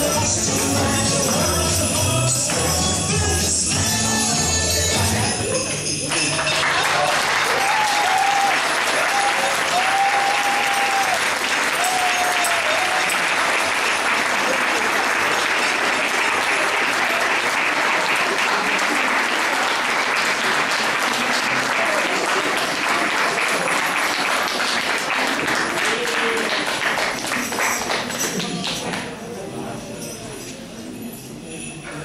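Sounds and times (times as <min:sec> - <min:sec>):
audience applauding: 0:05.9 - 0:29.1.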